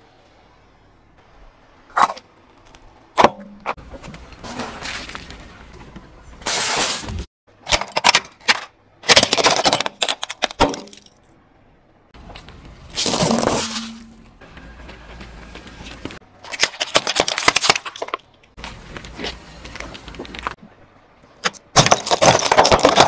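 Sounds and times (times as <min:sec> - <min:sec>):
plastic toy shattering: 0:07.6 - 0:11.2, 0:16.4 - 0:18.2, 0:21.4 - 0:23.0
plastic cracking under car tyre: 0:16.4 - 0:18.3.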